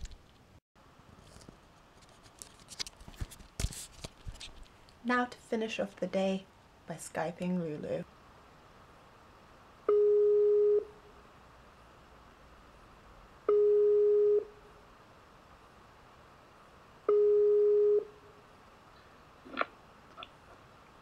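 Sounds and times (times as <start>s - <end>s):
outgoing call ringing tone: 9.9s - 10.9s, 13.5s - 14.5s, 17.1s - 18.1s.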